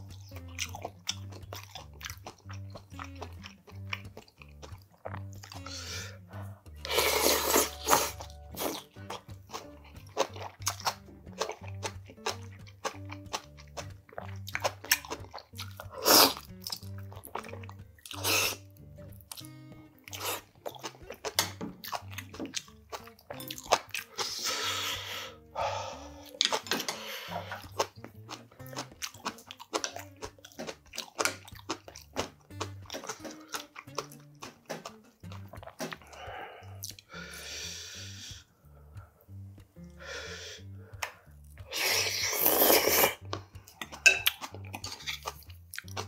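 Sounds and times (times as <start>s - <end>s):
chewing and crunching: 0.0s - 25.2s, 26.0s - 37.1s, 40.8s - 46.0s
soft background music: 0.0s - 46.0s
slurps and sips: 0.6s - 18.7s, 22.3s - 34.2s, 39.9s - 46.0s.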